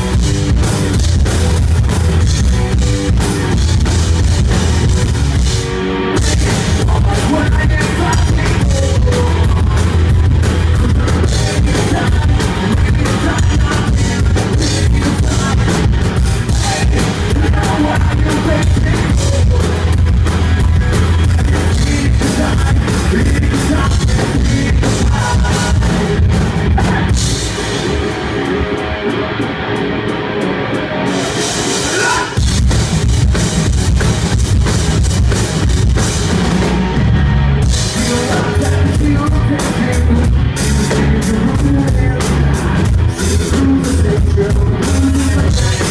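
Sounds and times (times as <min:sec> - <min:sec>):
bass guitar: 0:00.0 - 0:45.9
drum kit: 0:00.0 - 0:45.9
electric guitar: 0:00.0 - 0:45.9
person singing: 0:06.2 - 0:20.2, 0:21.2 - 0:27.3, 0:37.8 - 0:45.9.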